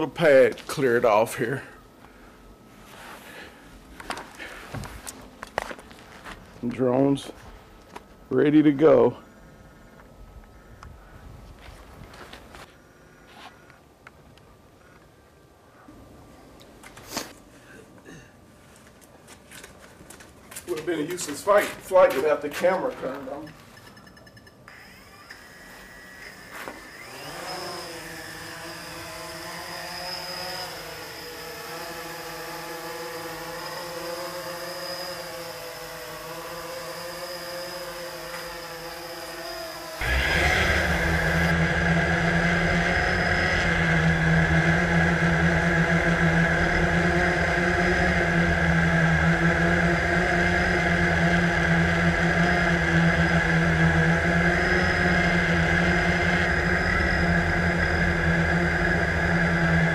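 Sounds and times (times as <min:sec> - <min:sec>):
drone motors buzzing: 0:23.4 - 0:59.9
heavy low rumble: 0:40.0 - 0:59.9.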